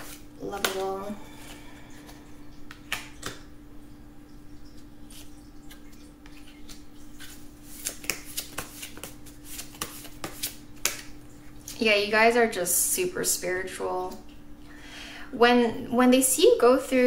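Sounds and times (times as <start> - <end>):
cards being shuffled: 0.0 - 1.0, 5.1 - 11.1.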